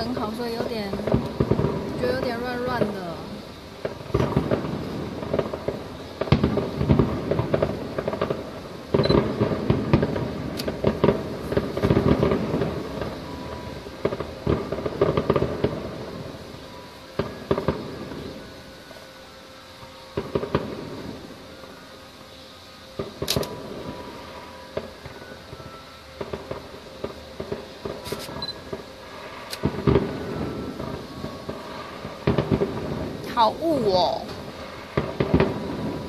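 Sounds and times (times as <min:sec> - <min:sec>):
fireworks bangs and crackles: 0:00.0 - 0:36.0.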